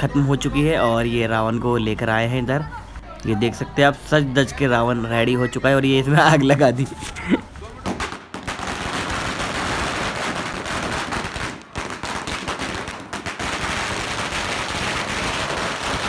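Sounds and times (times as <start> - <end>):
firecrackers banging and crackling: 6.2 - 16.0.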